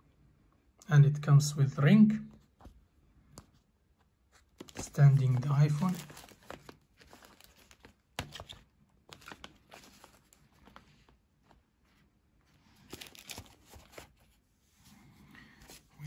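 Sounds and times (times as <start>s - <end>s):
packaging rustling: 4.4s - 11.6s, 12.7s - 14.4s.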